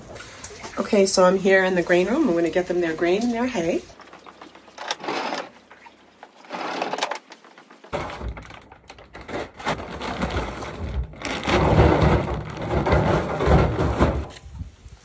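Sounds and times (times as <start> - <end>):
feed bag rustling and scraping: 4.8 - 5.6, 6.3 - 14.3.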